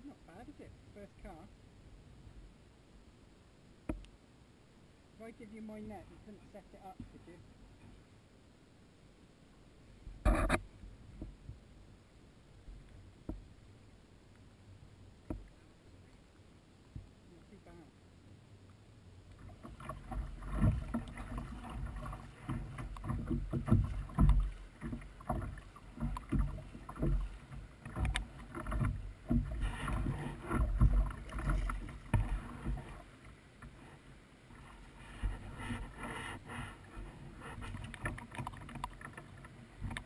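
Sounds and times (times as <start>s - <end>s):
water slapping against kayak hull: 19.3s - 40.0s.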